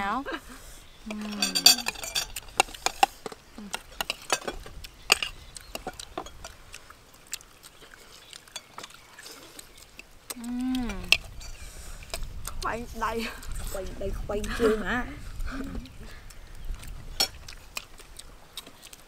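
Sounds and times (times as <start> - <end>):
spoons clicking against plates: 1.2 - 6.6
chewing and lip smacks: 1.9 - 12.7, 15.3 - 19.0.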